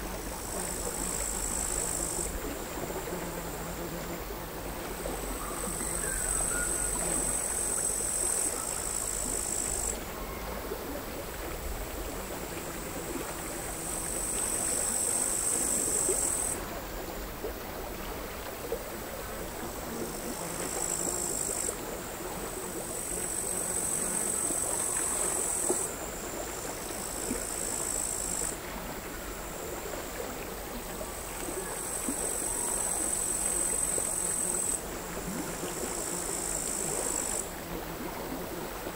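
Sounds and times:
crickets trilling: 0:00.0 - 0:10.7, 0:12.0 - 0:16.6, 0:19.4 - 0:38.5
small waves lapping on shore: 0:00.0 - 0:38.9.

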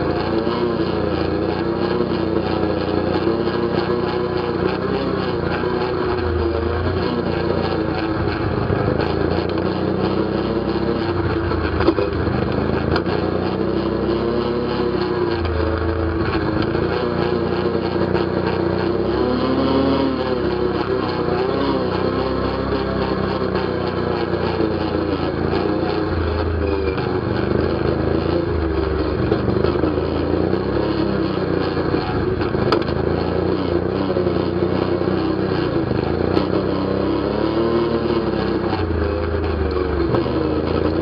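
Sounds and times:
atv engine revving: 0:00.0 - 0:41.0.

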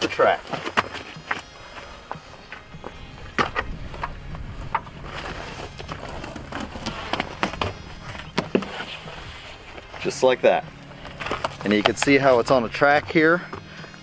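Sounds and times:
rubber seal scraping in track: 0:03.3 - 0:10.0.

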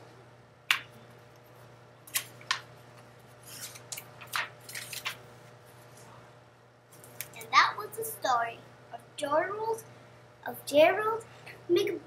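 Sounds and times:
book pages rustling and turning: 0:02.1 - 0:05.2.

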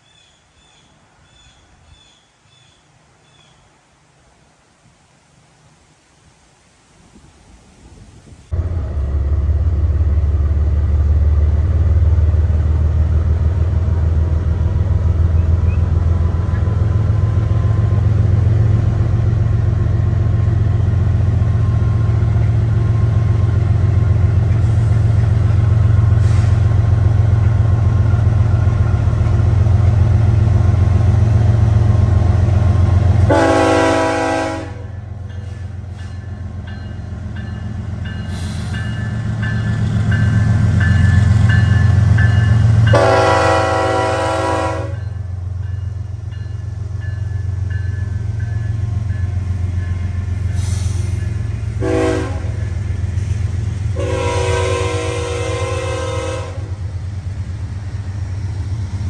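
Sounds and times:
locomotive engine rumble: 0:08.1 - 0:59.0
train air horn blast: 0:26.2 - 0:26.7, 0:33.2 - 0:35.6, 0:42.9 - 0:45.1, 0:51.8 - 0:52.7, 0:54.0 - 0:56.8.

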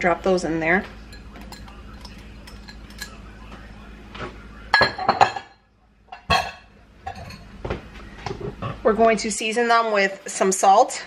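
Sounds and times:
kitchenware clinking: 0:01.0 - 0:03.4, 0:04.7 - 0:07.6.

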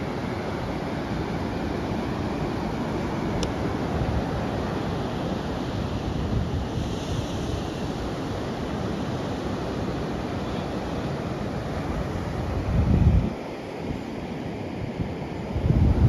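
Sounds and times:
wind rumbling on microphone: 0:00.0 - 0:08.8, 0:11.8 - 0:13.4, 0:14.8 - 0:16.0
ocean surf breaking on beach: 0:00.0 - 0:16.0.

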